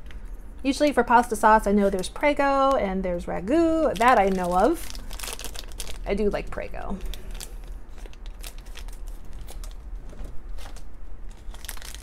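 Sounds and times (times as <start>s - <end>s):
foil bag crinkling and tearing: 3.6s - 12.0s.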